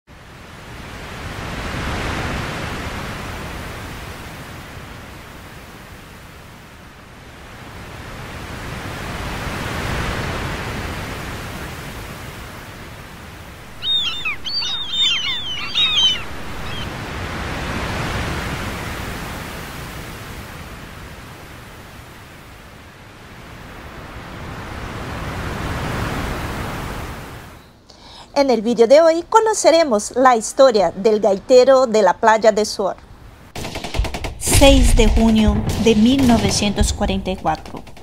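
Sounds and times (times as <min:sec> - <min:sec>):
sea waves breaking on beach: 0:00.1 - 0:27.6
bird chirping rapidly: 0:13.7 - 0:17.0.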